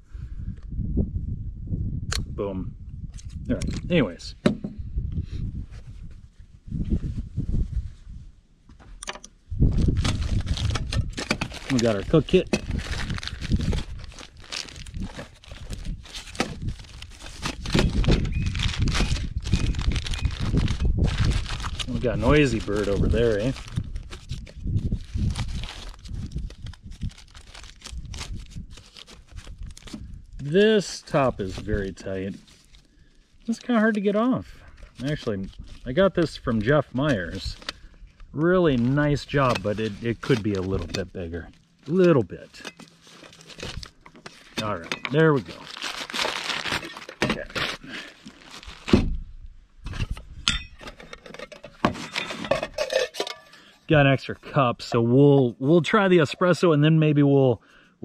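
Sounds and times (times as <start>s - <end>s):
fabric sack crinkling: 9.8s - 29.9s, 38.6s - 48.9s
metal cookware clinking and knocking: 52.2s - 53.5s.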